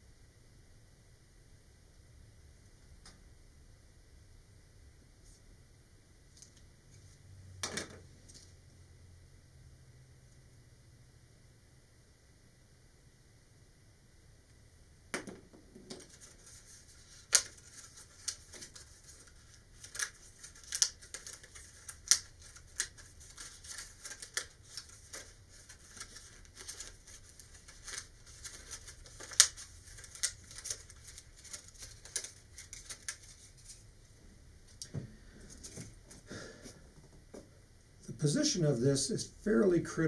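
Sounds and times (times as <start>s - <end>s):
plastic sheet crackling and snapping: 15.8s - 33.8s.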